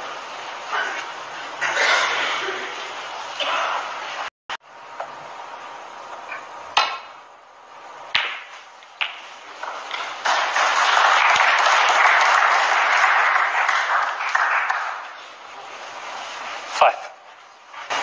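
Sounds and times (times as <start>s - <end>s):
snooker balls clicking: 8.2s - 10.5s
crowd applauding: 9.6s - 15.4s.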